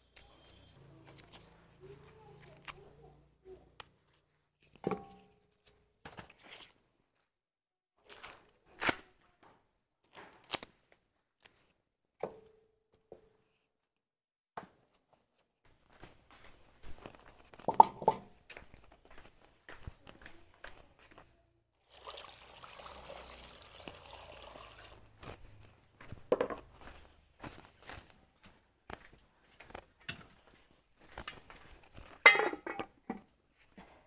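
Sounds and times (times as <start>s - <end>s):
corn husks tearing and rustling: 8.0s - 9.2s, 10.1s - 10.7s
knocks in a metal pot: 17.7s - 18.3s, 32.3s - 33.2s.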